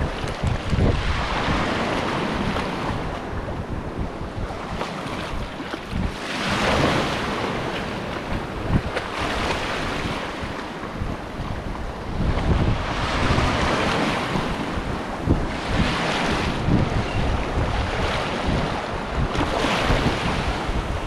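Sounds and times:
surf washing in: 0:00.0 - 0:21.0
wind buffeting microphone: 0:00.0 - 0:21.0.

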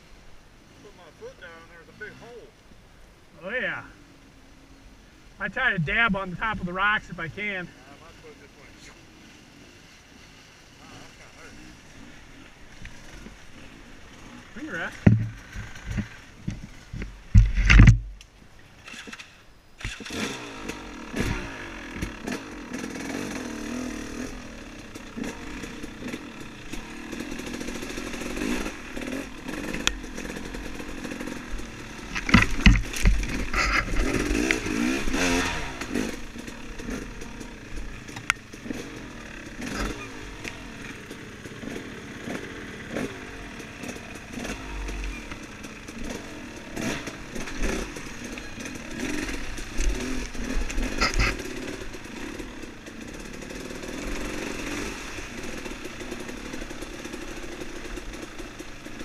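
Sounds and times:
dirt bike engine revving: 0:03.4 - 0:17.4, 0:18.8 - 0:59.0
bike knocks and clatter: 0:15.0 - 0:18.2, 0:32.1 - 0:34.5.

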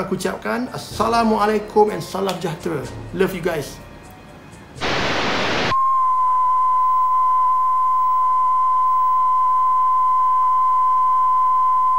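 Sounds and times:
tv static hiss: 0:04.8 - 0:05.8.

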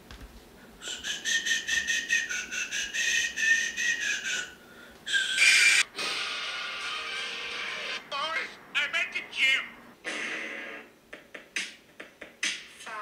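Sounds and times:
high warbling whistle: 0:05.1 - 0:05.9.

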